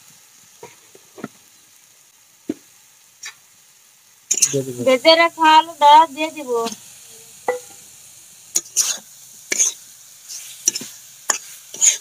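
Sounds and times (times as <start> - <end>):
faint sizzle of frying paste: 0.0 - 12.0
steel spatula scraping metal pan: 4.3 - 4.6, 8.6 - 12.0
knock on pan: 7.5 - 7.8.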